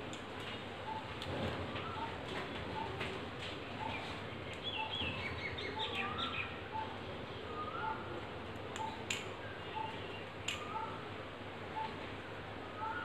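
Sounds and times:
small birds chirping: 0:03.7 - 0:08.1, 0:08.8 - 0:11.1.

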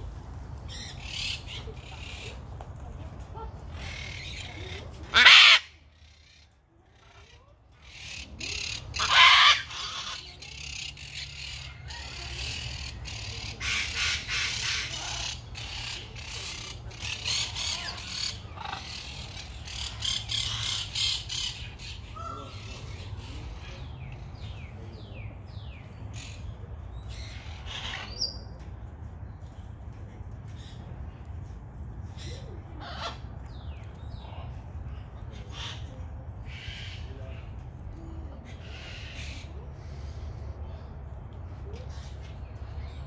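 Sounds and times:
macaws squawking: 0:03.8 - 0:05.8, 0:07.9 - 0:11.0.

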